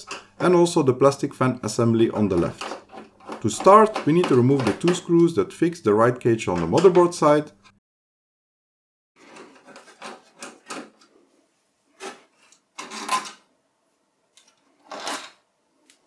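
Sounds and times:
screwdriver scraping metal: 2.4s - 5.1s, 14.8s - 15.4s.

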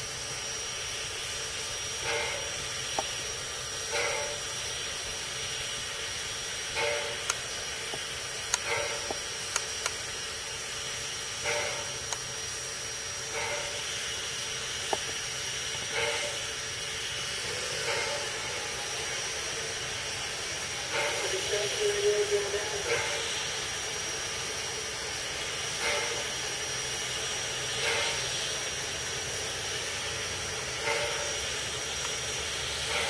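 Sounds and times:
short steam puffs: 0.0s - 33.0s
steam hissing: 0.0s - 33.0s
sharp clicks: 6.8s - 10.1s.

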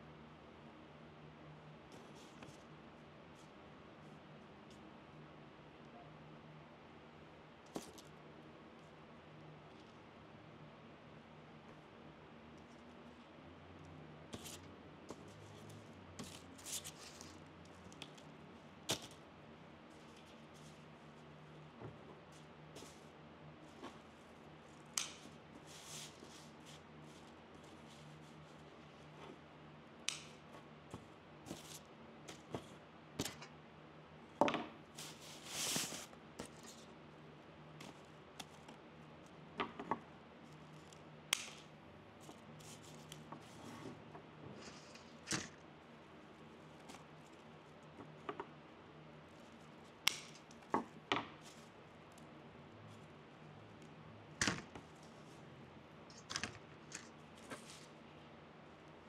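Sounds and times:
scissors snipping sprigs: 24.9s - 25.4s, 30.0s - 30.4s, 40.9s - 41.7s, 50.0s - 50.6s.

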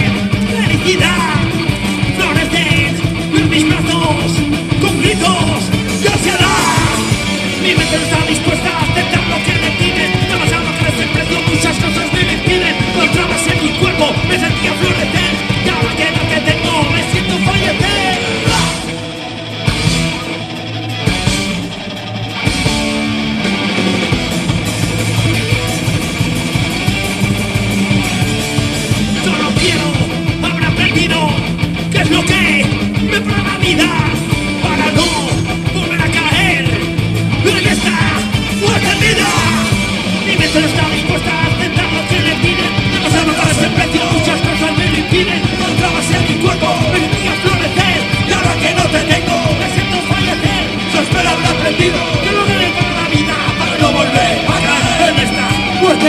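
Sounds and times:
punk rock band playing live: 0.0s - 56.0s.

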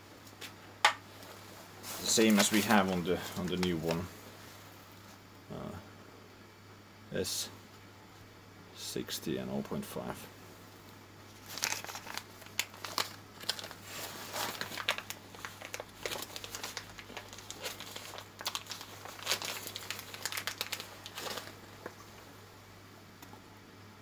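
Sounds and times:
plastic bag crinkling: 1.9s - 4.1s, 11.4s - 22.3s.

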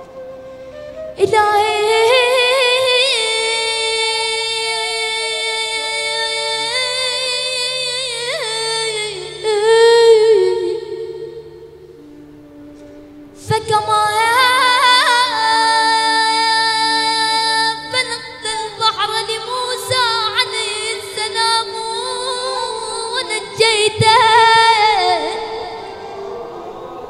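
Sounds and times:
boy chanting melodically: 13.5s - 27.0s.

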